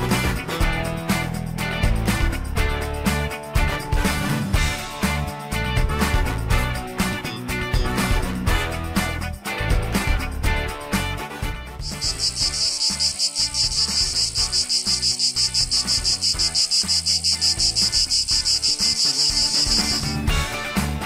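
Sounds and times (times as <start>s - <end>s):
cicada buzzing: 11.8s - 20.6s.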